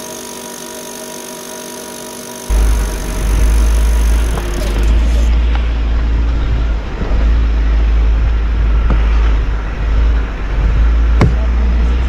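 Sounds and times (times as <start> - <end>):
vehicle engine rumbling: 2.5 - 12.0.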